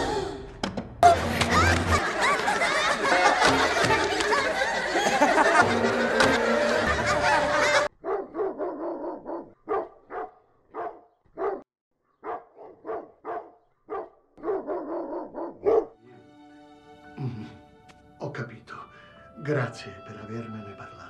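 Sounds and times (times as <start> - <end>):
muffled cartoon dog barks: 8.0 - 11.6, 12.2 - 16.0
soft music tones: 16.0 - 21.0.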